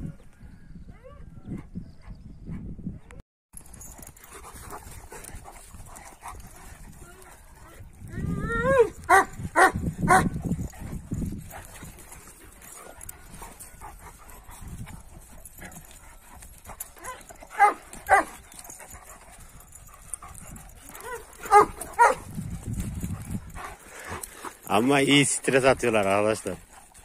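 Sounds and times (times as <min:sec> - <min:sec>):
dogs yipping: 0:03.6 - 0:24.7.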